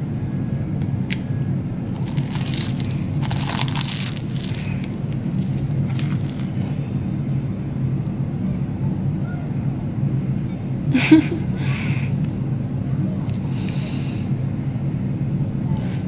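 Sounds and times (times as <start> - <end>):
steady low hum: 0.0 - 16.0
crunchy food chewing: 1.9 - 6.7.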